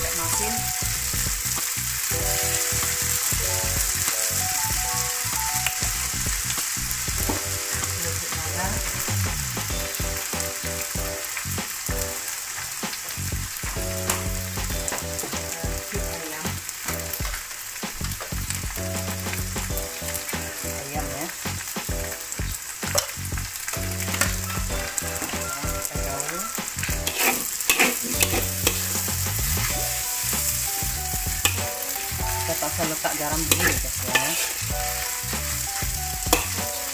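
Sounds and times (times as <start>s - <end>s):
noodles sizzling in wok: 0.0s - 36.9s
metal spatula scraping wok: 23.8s - 36.9s.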